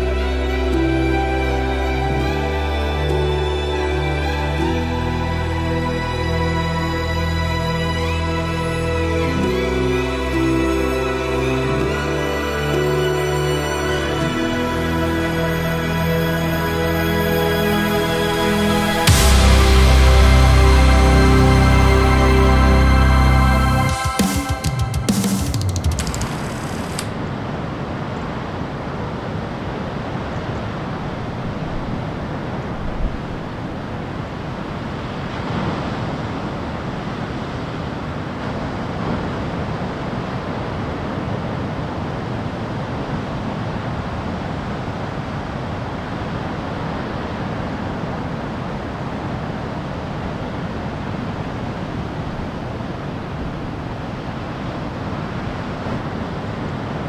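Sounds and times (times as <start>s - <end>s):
ocean surf breaking: 18.3s - 57.0s.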